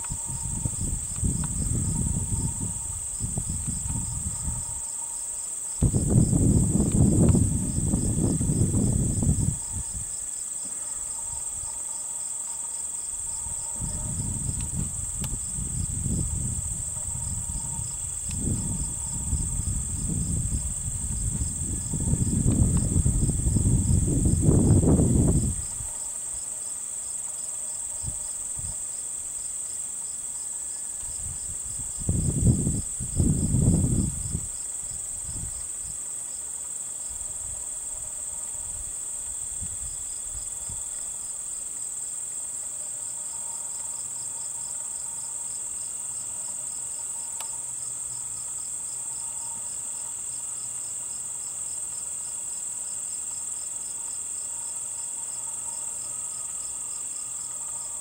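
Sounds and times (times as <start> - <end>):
insects buzzing: 0.0 - 58.0
pulsing insect trill: 0.0 - 58.0.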